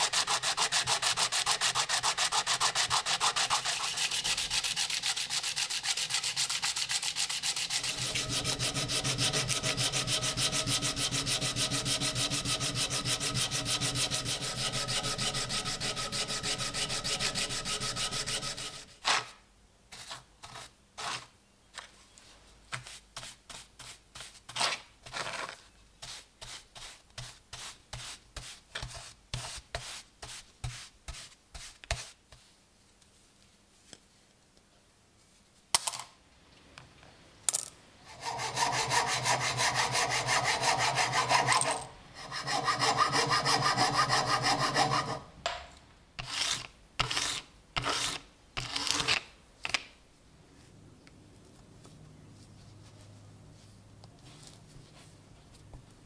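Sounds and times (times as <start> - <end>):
sandpaper strokes on metal: 0.0 - 18.9, 38.1 - 45.2.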